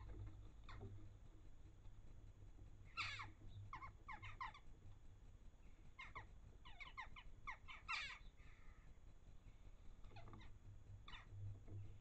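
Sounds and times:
jackdaws calling: 2.9s - 4.7s, 5.9s - 8.9s, 10.0s - 11.4s.

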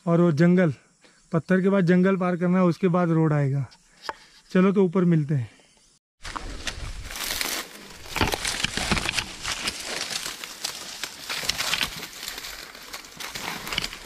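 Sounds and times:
dry grass crackling: 6.2s - 14.0s
footsteps on grass and rock: 6.2s - 14.0s.

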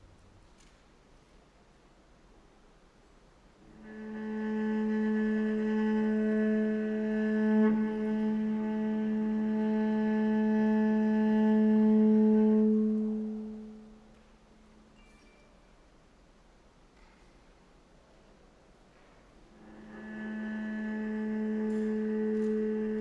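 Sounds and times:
bowed cello note: 3.7s - 14.1s, 19.5s - 23.0s.

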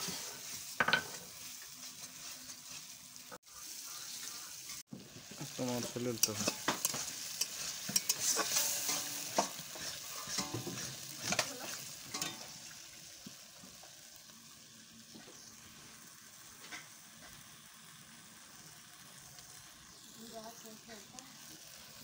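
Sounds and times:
metal spatula scraping a pan: 0.0s - 3.0s, 5.4s - 12.6s
curry sizzling in a pan: 0.0s - 22.0s.

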